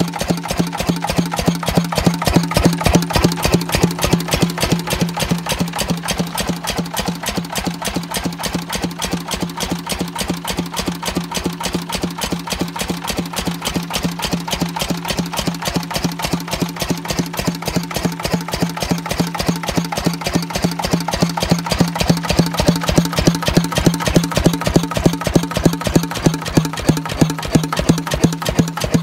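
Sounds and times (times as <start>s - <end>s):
diesel engine idling: 0.1s - 29.0s.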